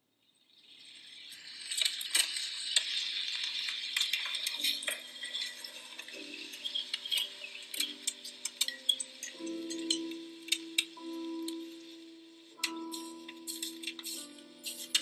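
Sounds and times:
faint music notes: 0:03.6 - 0:15.0
pen scratching on paper: 0:13.0 - 0:15.0.

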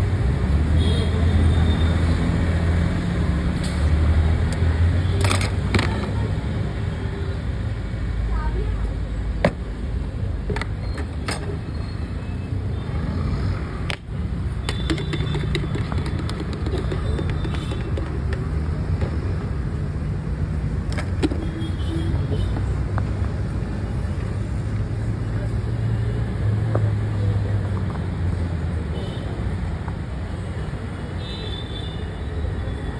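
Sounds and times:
street traffic rumble: 0:00.0 - 0:32.9
sharp clicks and taps: 0:13.9 - 0:19.2.

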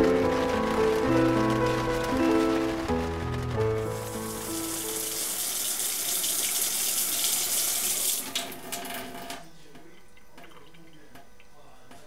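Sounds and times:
water running from faucet: 0:03.8 - 0:09.2.

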